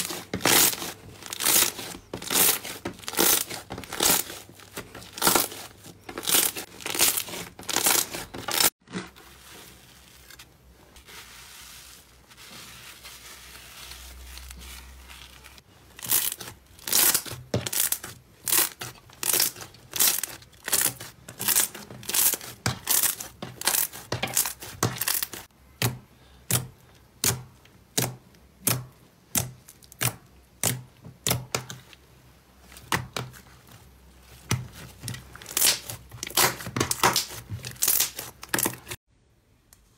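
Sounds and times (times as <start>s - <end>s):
slime squishing: 0.0s - 25.5s
slime popping and crackling: 35.5s - 39.0s.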